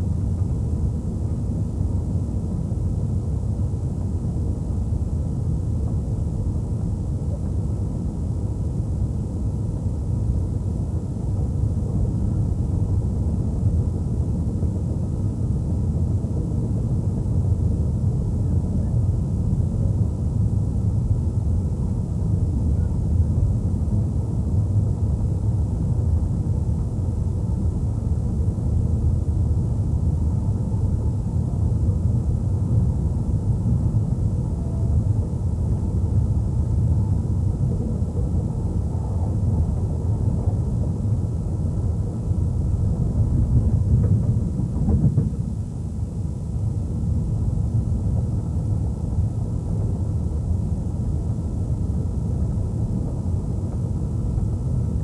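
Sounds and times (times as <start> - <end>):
train car rumbling on track: 33.6 - 55.0.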